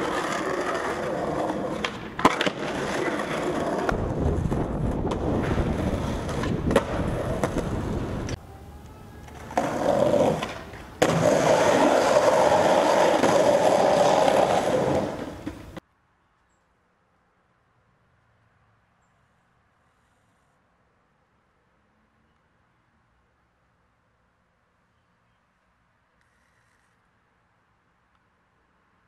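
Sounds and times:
skateboard clacks: 0.0s - 8.4s, 9.2s - 15.8s
skateboard wheels rolling on pavement: 0.0s - 15.8s.

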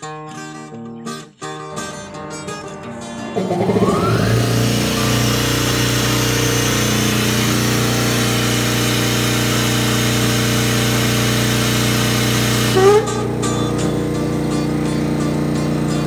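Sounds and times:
air compressor humming: 2.6s - 16.0s.

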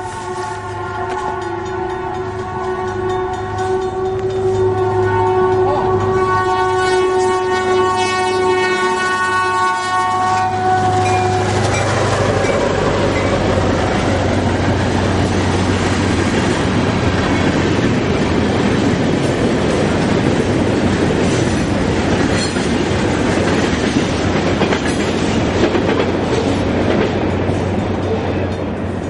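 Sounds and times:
train air horn blast: 0.0s - 12.4s
train wheels rumbling over rails: 0.0s - 29.0s.

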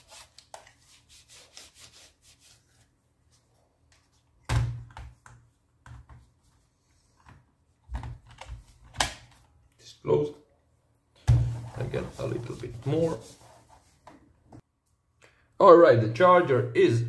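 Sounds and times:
paper towel rubbing plastic: 0.0s - 3.5s, 11.6s - 14.0s.

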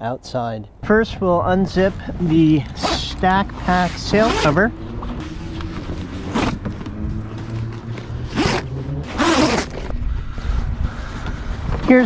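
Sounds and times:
large plastic zip unzipping: 3.8s - 4.6s, 5.2s - 6.6s, 8.2s - 9.9s.

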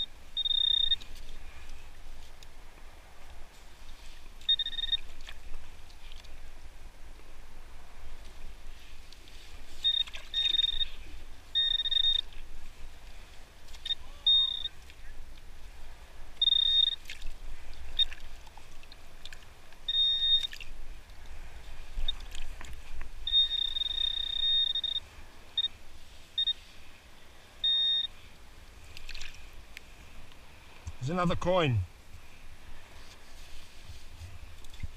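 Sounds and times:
pinpointer beeping high tone: 0.0s - 1.0s, 4.5s - 5.0s, 9.8s - 11.0s, 11.6s - 12.3s, 13.8s - 14.8s, 16.4s - 17.0s, 19.9s - 20.5s, 23.3s - 25.0s, 25.6s - 25.8s, 26.4s - 26.6s, 27.6s - 28.1s.

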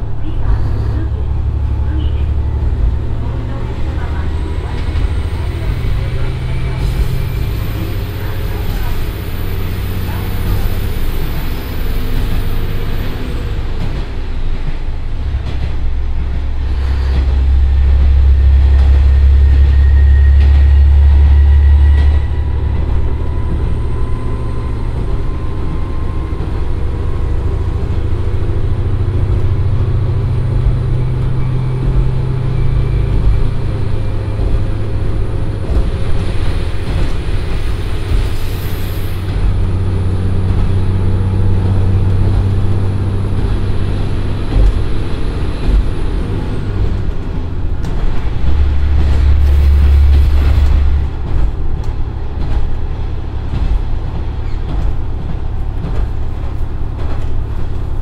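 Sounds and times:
diesel railcar engine: 0.0s - 58.0s
train wheels on rails: 0.0s - 58.0s.

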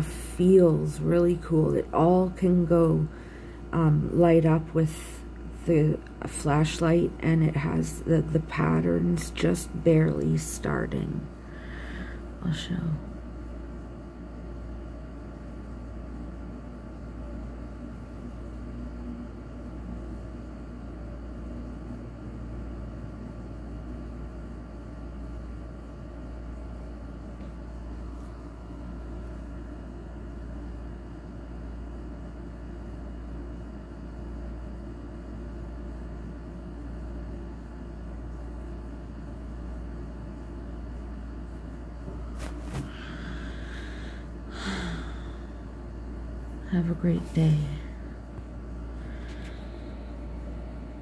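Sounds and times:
faint hum: 0.0s - 51.0s.

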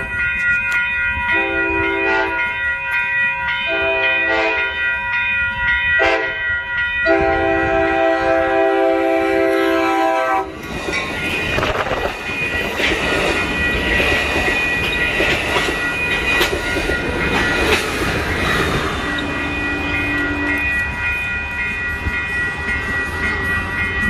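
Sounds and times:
crossing warning bell: 0.0s - 24.0s
train wheels on rails: 0.0s - 24.0s
train horn blasts: 1.3s - 2.4s, 3.7s - 4.8s, 6.0s - 6.4s, 7.0s - 10.6s.

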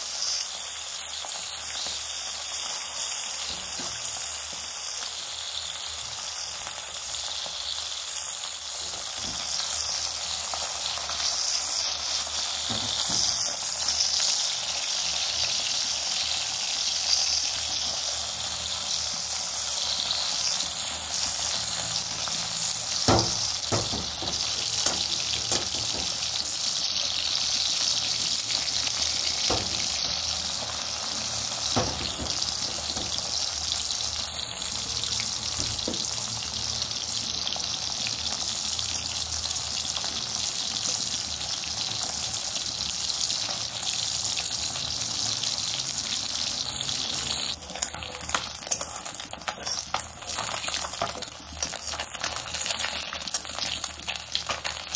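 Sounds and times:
fish sizzling in hot oil: 0.0s - 54.9s.

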